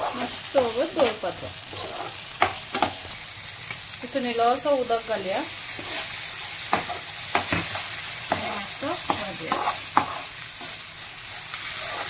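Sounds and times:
metal spoon scraping a pan: 0.0 - 3.2, 5.6 - 12.0
food sizzling in a frying pan: 0.0 - 12.0.

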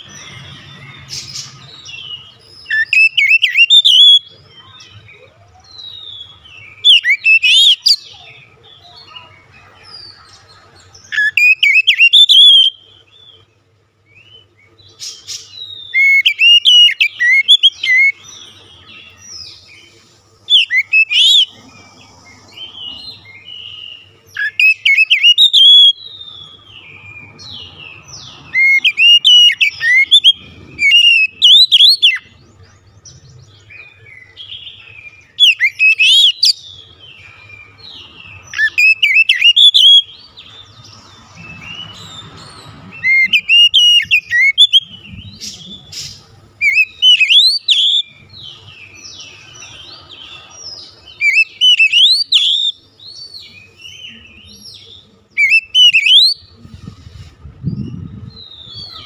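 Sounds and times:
bird singing whistled phrases: 2.0 - 4.8, 5.6 - 8.4, 11.1 - 12.9, 15.4 - 18.2, 20.5 - 21.5, 23.6 - 26.6, 28.2 - 32.3, 35.3 - 36.7, 38.5 - 40.2, 43.0 - 48.2, 51.2 - 52.8, 55.4 - 56.5.

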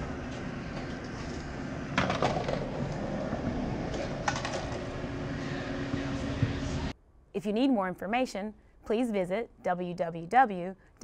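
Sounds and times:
train low hum: 0.0 - 2.0, 2.6 - 7.0.

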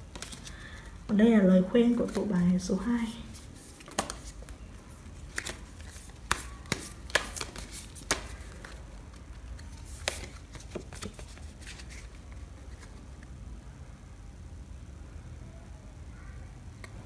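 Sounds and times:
paper cards snapping and tapping: 3.8 - 4.6, 5.3 - 11.7.

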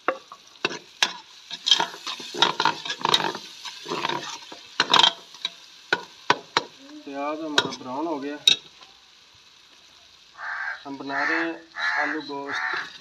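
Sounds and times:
onions sizzling in oil: 0.0 - 13.0
metal spoon scraping a pot: 0.7 - 5.2.

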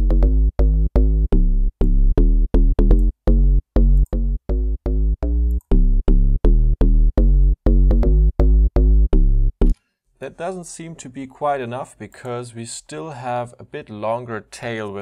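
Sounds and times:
staccato synth bass notes: 0.0 - 9.8.

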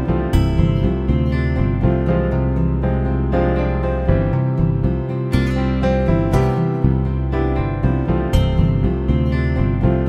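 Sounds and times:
instrumental music: 0.0 - 10.0
plucked string notes: 0.0 - 10.0.

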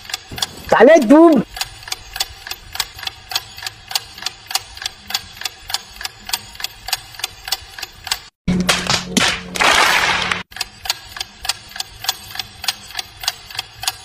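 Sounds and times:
rapid clicks: 0.0 - 8.3.

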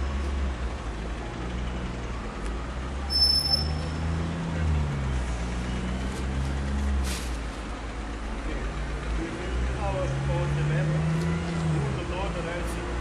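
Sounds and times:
vehicle engine rumbling: 0.0 - 13.0
brief high squeal: 3.1 - 4.0.

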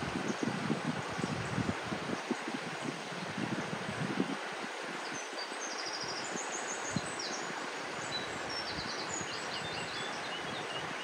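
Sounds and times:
stream rushing over rocks: 0.0 - 11.0
small birds chirping and trilling: 5.0 - 11.0.

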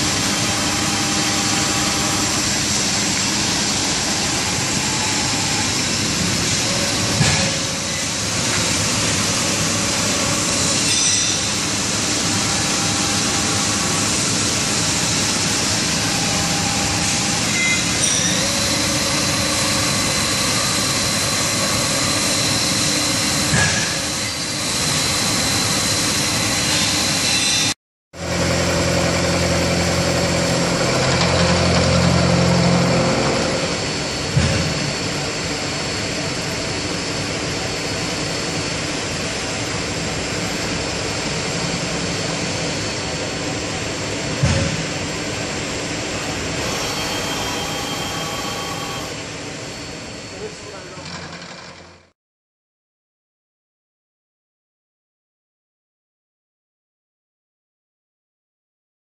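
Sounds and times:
milling machine cutting metal: 0.0 - 27.7, 28.4 - 34.4, 46.0 - 49.2.

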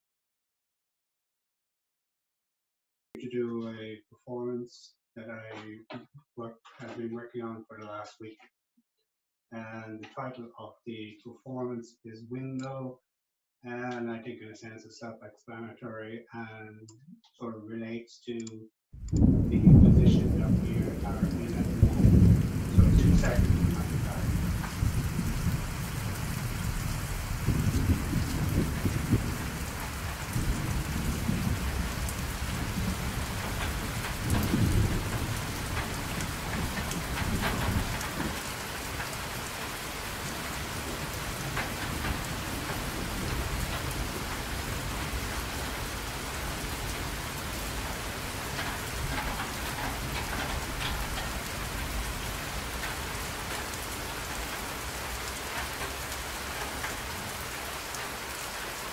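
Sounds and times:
rolling thunder: 19.0 - 58.7
steady rain: 19.0 - 58.9.

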